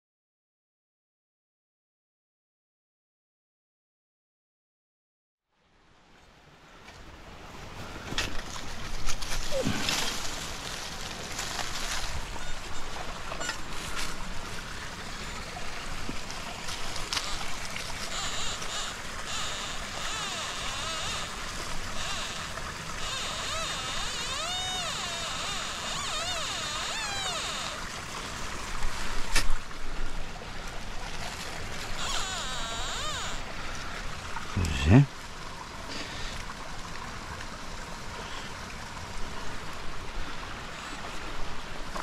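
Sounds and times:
stream running: 5.6 - 42.0
metal detector warbling tones: 12.4 - 13.8, 17.1 - 27.8, 32.0 - 33.4.

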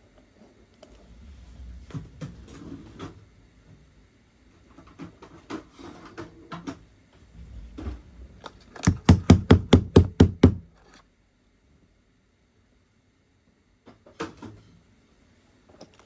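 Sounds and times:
metal tool knocking on desk: 8.8 - 10.7.

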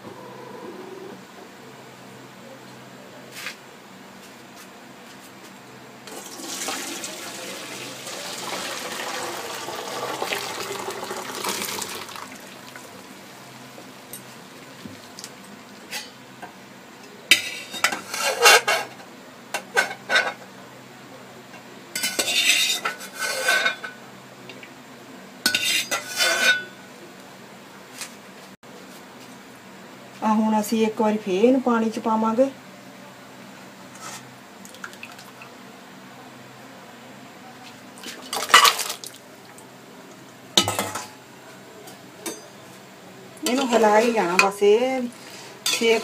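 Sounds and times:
water pouring through colander: 6.1 - 13.0.

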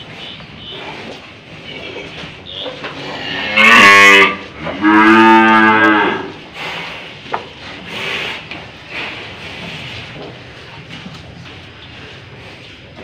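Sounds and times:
cow mooing: 2.5 - 6.4.

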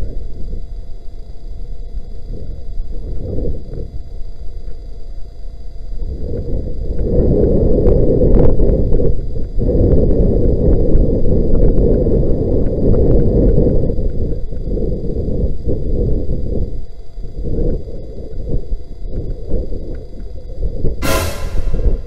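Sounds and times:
wind buffeting microphone: 6.1 - 21.0.

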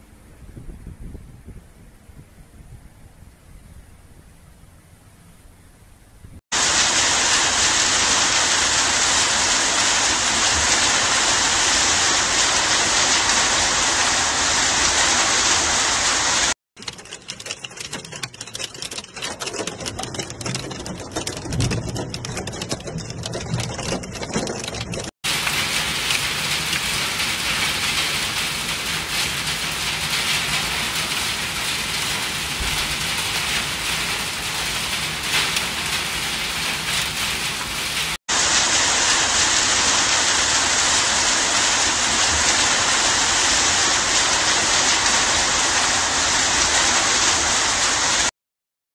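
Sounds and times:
heavy rain downpour: 6.5 - 17.0, 19.2 - 48.3
hail on flat roof: 6.5 - 48.3
rain heard inside moving vehicle: 6.6 - 48.3.

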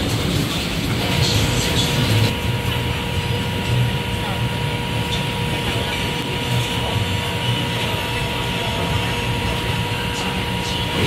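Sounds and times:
fans and cooking equipment roar: 0.0 - 11.0.

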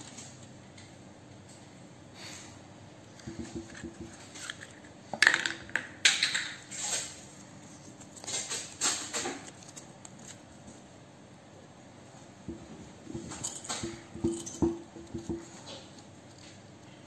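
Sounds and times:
paper crinkling: 6.9 - 10.5.

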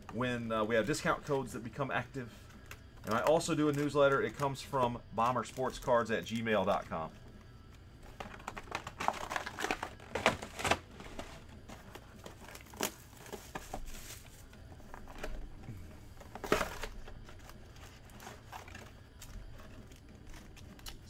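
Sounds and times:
packaging rustling: 7.6 - 21.0
plastic wrap crinkling: 8.0 - 15.5.

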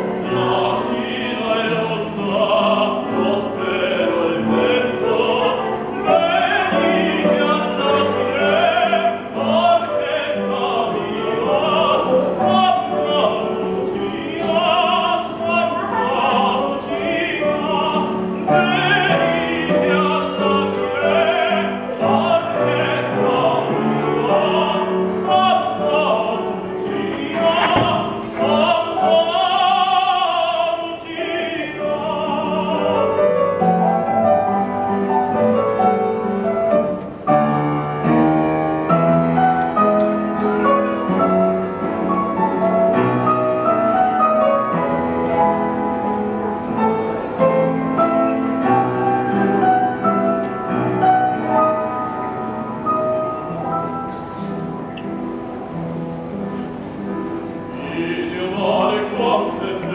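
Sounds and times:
man singing operatically: 0.0 - 33.4, 57.8 - 59.9
upright piano: 0.0 - 59.9.

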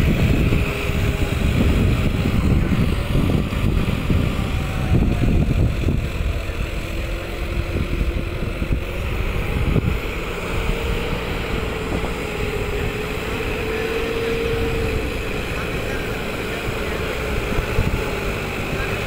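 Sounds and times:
tractor engine running: 0.0 - 19.0
wind buffeting microphone: 0.0 - 19.0.

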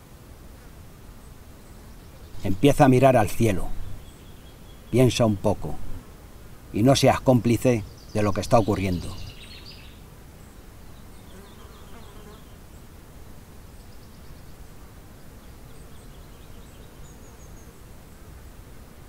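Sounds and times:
steady insect buzz: 0.0 - 19.0
faint high bird chirps: 7.6 - 12.8.

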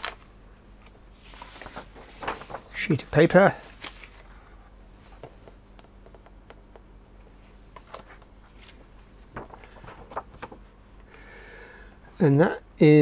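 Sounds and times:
steady low hum: 0.1 - 13.0
paper sheets rustling: 0.8 - 4.5, 7.7 - 10.8.

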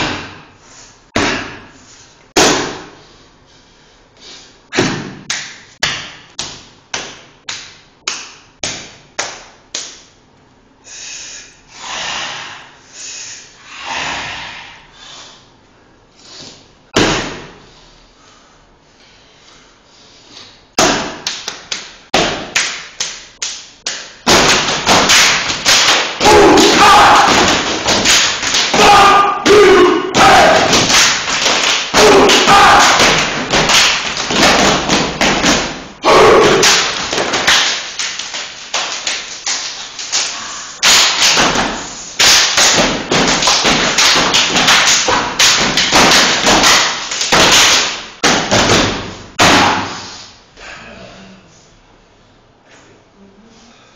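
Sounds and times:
hand slaps: 4.7 - 10.1, 20.8 - 29.6, 30.2 - 35.8, 36.4 - 50.0
rhythmic stomping on hard floor: 24.2 - 29.0, 30.1 - 49.9.

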